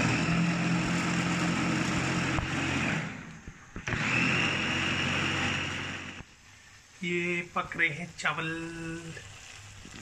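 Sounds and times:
food chopper motor running: 0.0s - 6.3s.

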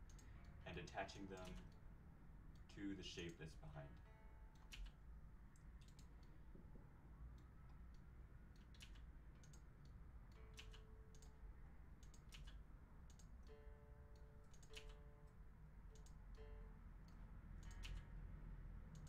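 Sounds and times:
low steady hum: 0.0s - 19.0s
computer mouse and keyboard clicks: 1.4s - 1.8s, 4.6s - 5.0s, 5.6s - 6.4s, 7.4s - 9.7s, 10.3s - 11.4s, 12.0s - 13.5s, 14.2s - 15.0s, 15.9s - 16.2s, 17.1s - 18.2s.

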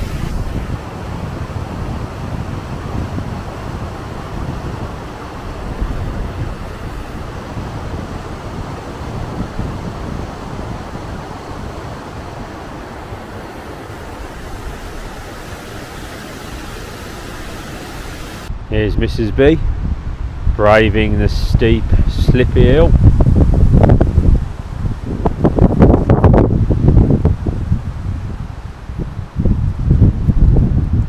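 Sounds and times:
river rushing over rapids: 0.0s - 18.5s
wind buffeting microphone: 0.0s - 31.0s.

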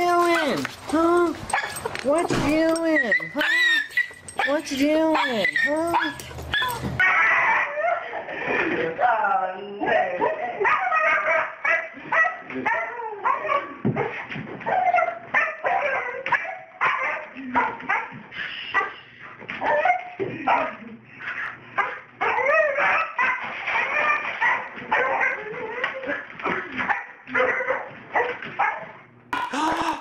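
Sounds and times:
dog barking: 1.5s - 1.9s, 3.1s - 8.0s, 10.3s - 19.0s, 21.8s - 25.4s, 26.8s - 29.0s
dog whining and yipping: 2.7s - 8.0s.

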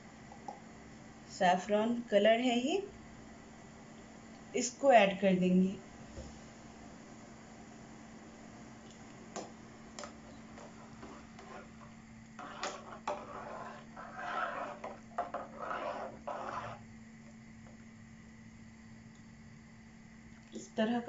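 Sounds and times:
steady low hum: 0.0s - 21.0s
spoon stirring water in pot: 8.9s - 16.8s.

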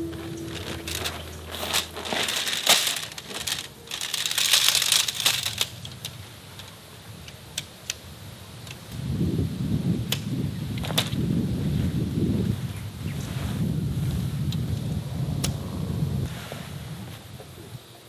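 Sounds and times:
plastic wrapper and fabric rustling: 0.0s - 6.2s
tent poles clicking: 0.0s - 9.0s, 10.0s - 11.2s.

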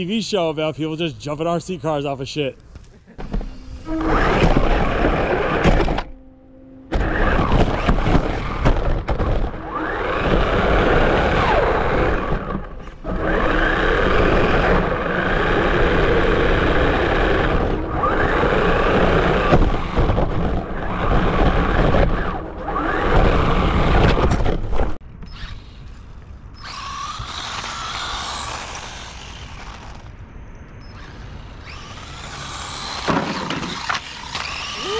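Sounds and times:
electric motor whining: 3.2s - 24.3s, 26.6s - 30.1s, 30.8s - 34.9s.

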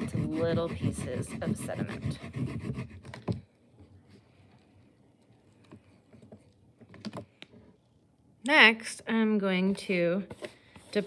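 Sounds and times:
blade scraping wax crayon: 0.0s - 3.3s.

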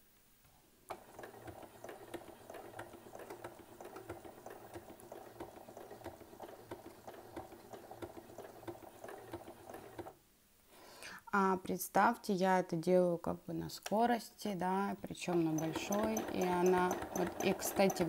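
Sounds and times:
sewing machine clattering: 0.9s - 10.1s, 15.3s - 18.0s.

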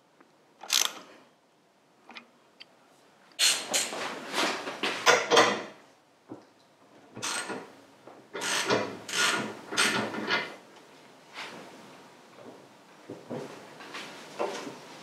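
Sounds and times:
hand tools mechanical strokes: 0.6s - 1.0s.

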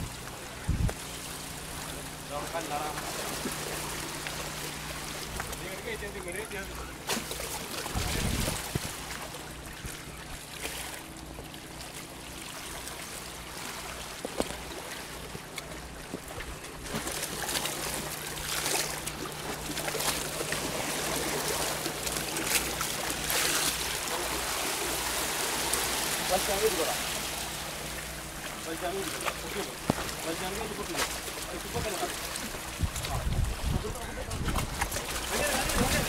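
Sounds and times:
sea water splashing on rocks: 12.4s - 36.0s.

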